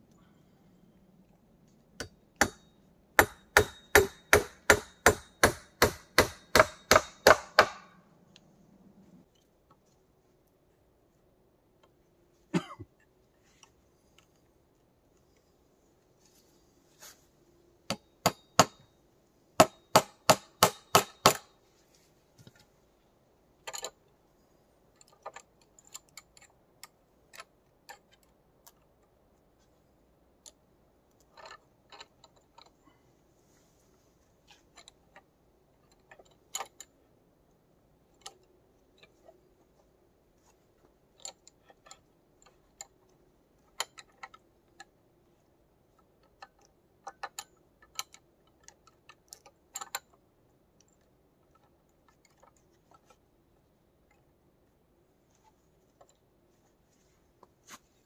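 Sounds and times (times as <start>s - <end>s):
sharp knocks: 2.0s - 8.0s.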